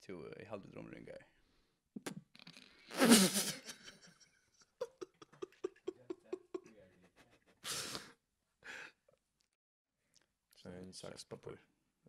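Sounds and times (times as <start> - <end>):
person laughing: 3.0 - 8.1.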